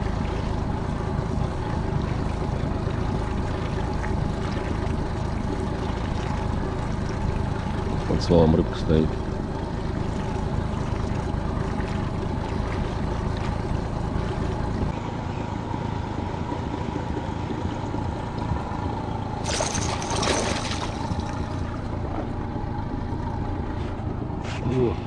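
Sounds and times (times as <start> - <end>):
outboard motor rumbling: 0.0 - 25.0
fish splashing at water surface: 19.4 - 21.8.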